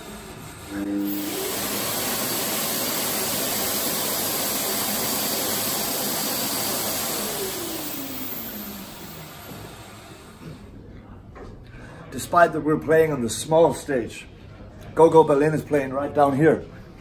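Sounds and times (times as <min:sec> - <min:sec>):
electric hand dryer blowing: 0:00.8 - 0:10.6.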